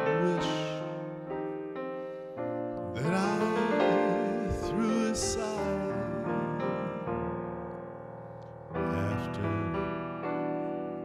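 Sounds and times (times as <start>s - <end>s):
man singing with vibrato: 0.0s - 1.1s, 2.9s - 7.2s, 8.8s - 9.9s
jazz piano ballad: 0.0s - 11.0s.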